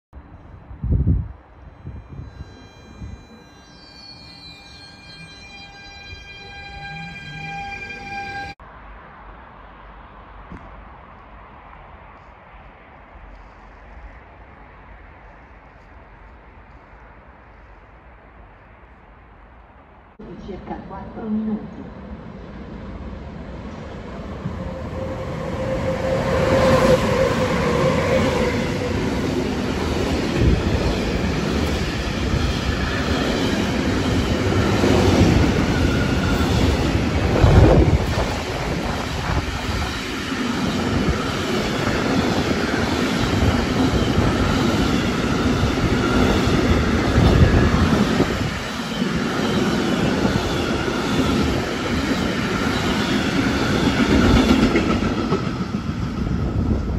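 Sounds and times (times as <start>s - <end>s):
train wheels rolling on rails: 22.7s - 56.9s.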